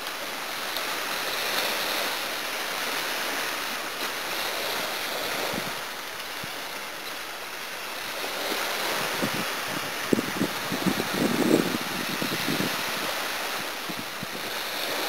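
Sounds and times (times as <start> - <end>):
small waves washing up a beach: 0.0 - 15.0.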